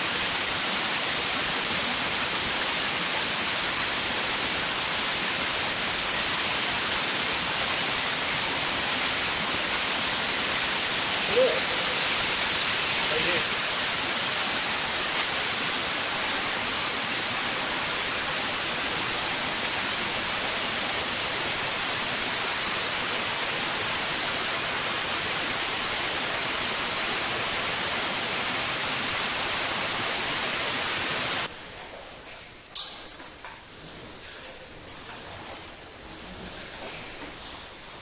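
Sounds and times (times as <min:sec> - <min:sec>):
water falling and spraying: 0:00.0 - 0:38.0.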